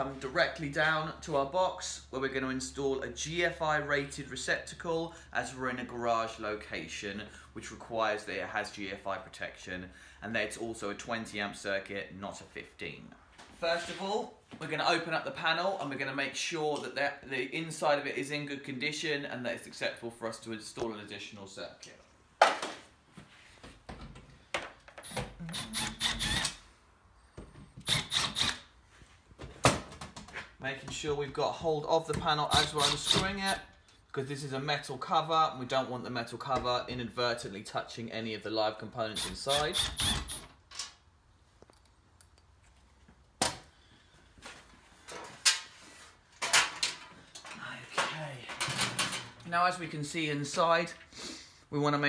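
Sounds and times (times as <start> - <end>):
cordless drill motor running: 25.1 - 26.6, 27.8 - 28.6.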